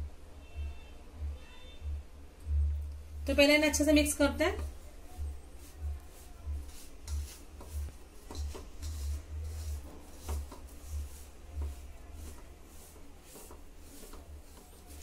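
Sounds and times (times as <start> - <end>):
hand rubbing flour in steel plate: 3.4 - 15.0.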